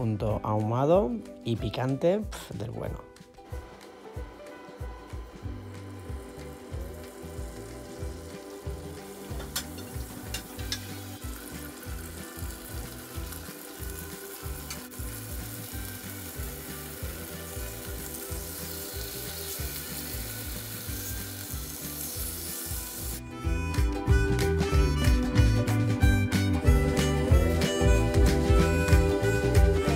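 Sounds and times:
background music: 0.0 - 29.9
chicken and onion sizzling in oil: 5.1 - 23.2.

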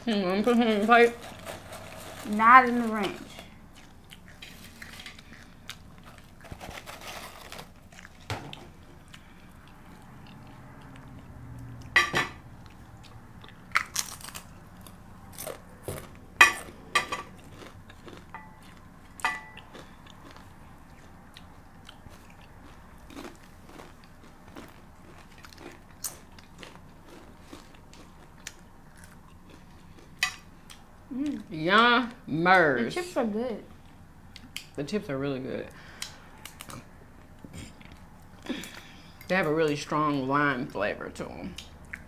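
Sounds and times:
chips crunching while chewed: 0.4 - 11.9, 12.6 - 30.8.

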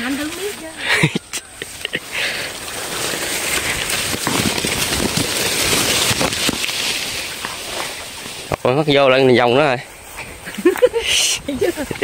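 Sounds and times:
leaves rustling against microphone: 0.0 - 12.0.

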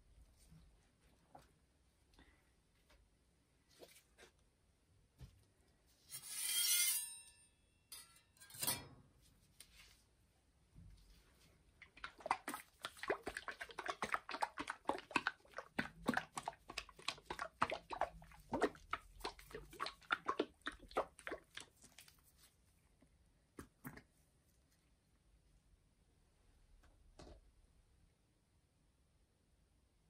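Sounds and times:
liquid sloshing in shaken bottle: 11.8 - 22.4.

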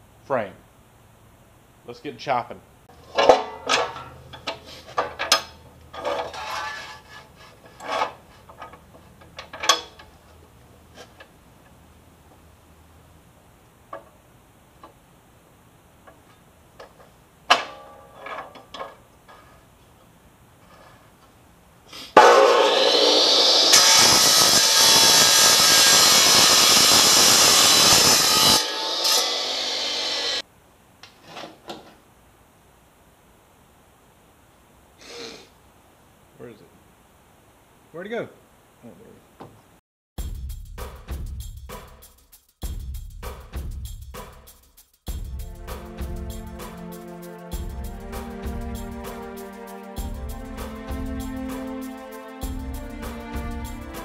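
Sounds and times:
sheet steel clanking and scraping: 2.9 - 11.3, 16.8 - 19.7, 22.2 - 26.0
cutoff wheel grinding metal: 3.0 - 10.3, 22.2 - 30.4
chop saw spinning up with whine: 22.2 - 30.4.

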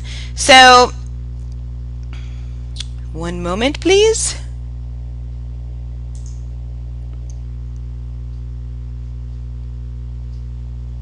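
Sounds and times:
mains hum: 0.0 - 11.0.

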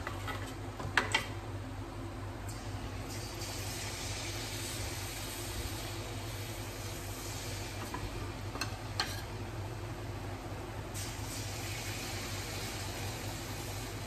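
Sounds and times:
batter sizzling in hot oil: 3.0 - 9.4, 10.9 - 14.0.

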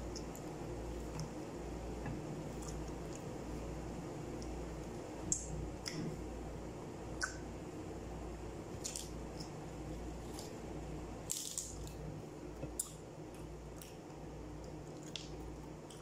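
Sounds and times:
steady low hum: 0.0 - 16.0
bread tearing clicks: 8.8 - 16.0.

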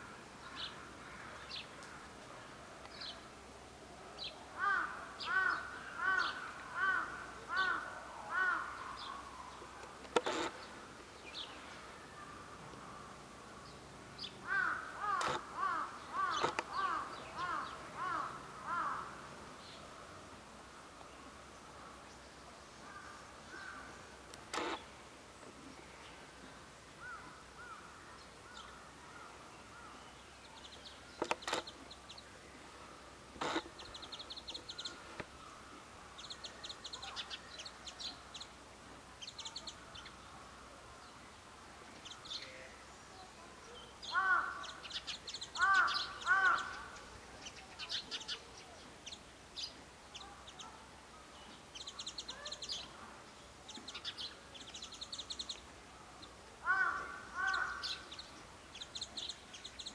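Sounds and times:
crows cawing: 0.0 - 2.1, 4.6 - 9.3, 14.4 - 19.3, 22.9 - 23.9, 27.0 - 30.0, 44.1 - 44.9, 45.6 - 47.0, 56.6 - 58.1
small birds chirping trills: 4.2 - 59.9.

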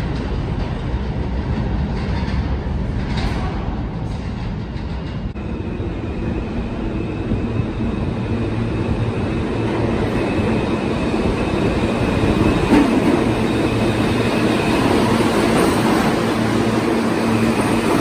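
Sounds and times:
subway train rumble and hiss: 0.0 - 18.0.

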